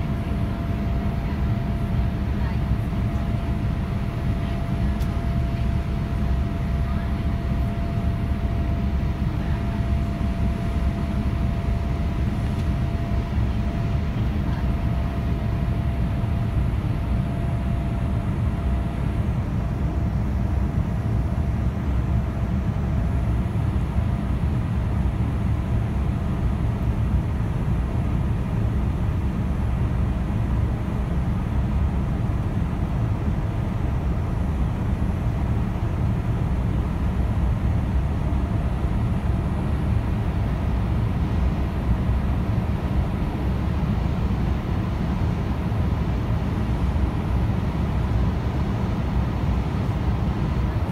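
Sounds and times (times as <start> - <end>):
jet engine cabin rumble: 0.0 - 50.9.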